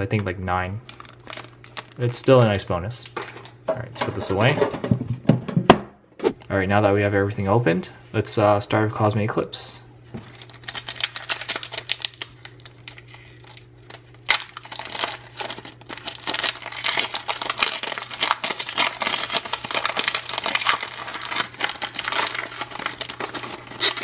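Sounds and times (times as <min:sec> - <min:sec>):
foil wrapper crinkling: 0:00.0 - 0:03.6, 0:10.2 - 0:24.0.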